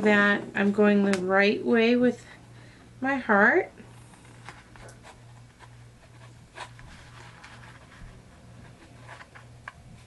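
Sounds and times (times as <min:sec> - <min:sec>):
steady low hum: 0:00.0 - 0:10.0
cardstock rustling and scratching: 0:04.1 - 0:10.0.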